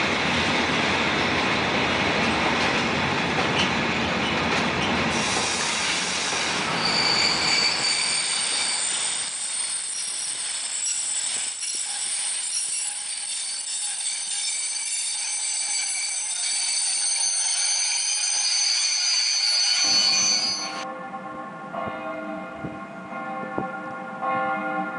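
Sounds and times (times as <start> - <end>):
steel wheels squealing: 3.6 - 20.8.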